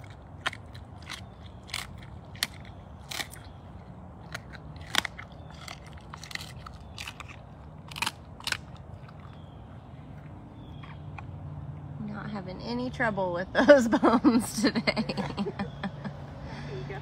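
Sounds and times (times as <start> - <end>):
big cat crunching bones: 0.0 - 12.0.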